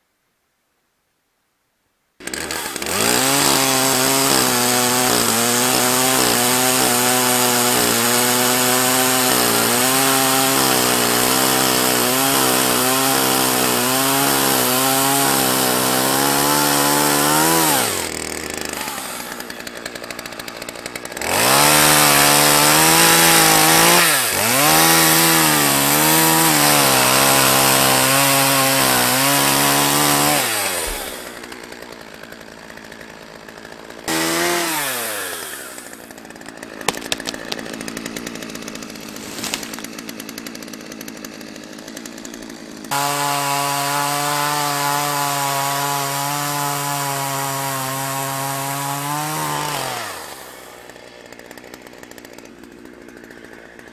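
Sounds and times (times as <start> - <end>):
chainsaw cutting and idling: 2.2 - 53.9
tree trunk cracking: 16.4 - 26.8, 27.4 - 44.7.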